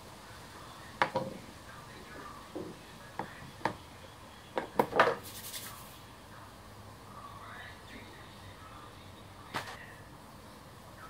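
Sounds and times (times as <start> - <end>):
scraping hiss: 4.9 - 6.1.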